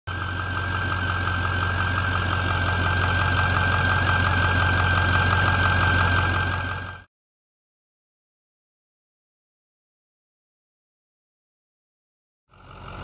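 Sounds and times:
high-pitched whine: 0:00.1 - 0:07.0
diesel engine idling: 0:00.1 - 0:07.1, 0:12.5 - 0:13.0.

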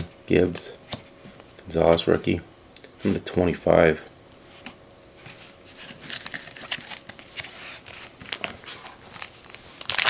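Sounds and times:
cards rustling and clicking: 0:04.6 - 0:10.0.

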